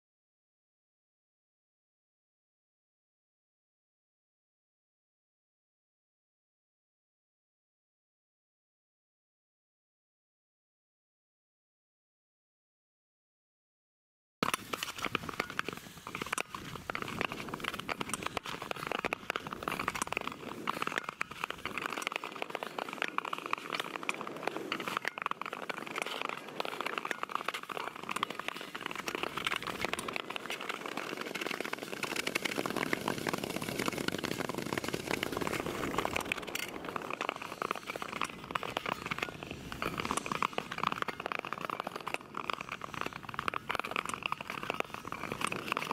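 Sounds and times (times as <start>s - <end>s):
ice skate blades scraping ice: 14.4s - 45.9s.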